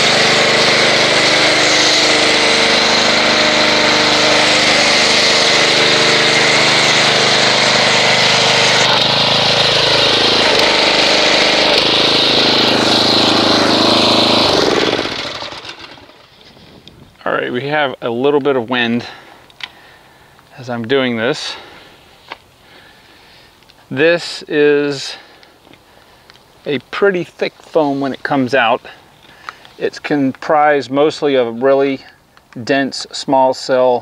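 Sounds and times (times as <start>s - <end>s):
hissing foam spray: 0.0s - 16.2s
pressure washer motor hum: 0.0s - 16.6s.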